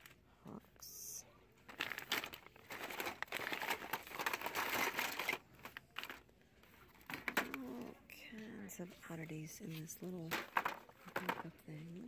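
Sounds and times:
plastic packaging crinkling: 1.5 - 7.7.

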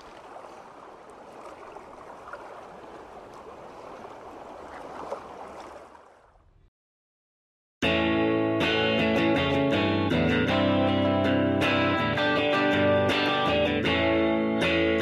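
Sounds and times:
rushing bubbling water: 0.0 - 6.4.

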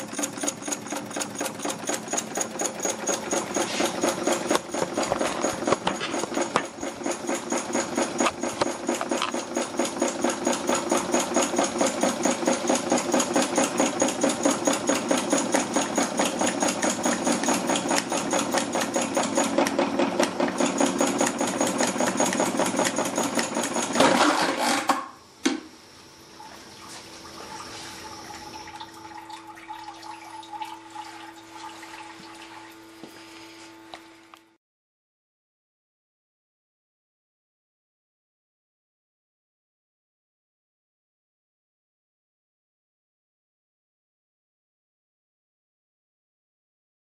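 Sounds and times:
engine mechanical clatter: 0.0 - 25.1.

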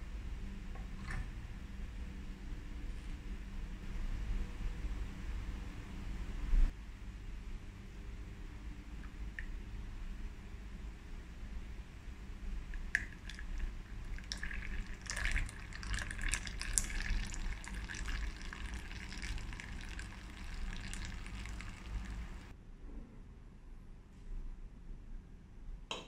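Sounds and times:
frothed milk trickling into glass: 12.7 - 22.5.

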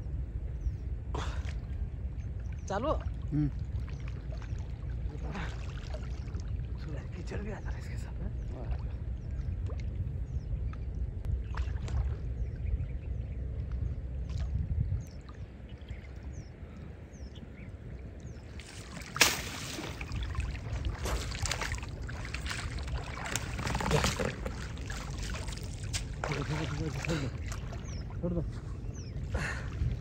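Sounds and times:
water sloshing and splashing: 1.2 - 12.6, 17.8 - 30.0.

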